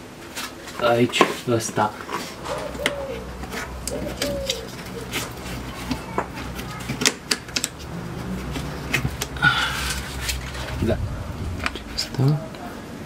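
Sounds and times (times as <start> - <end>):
dove cooing: 2.3 - 6.8.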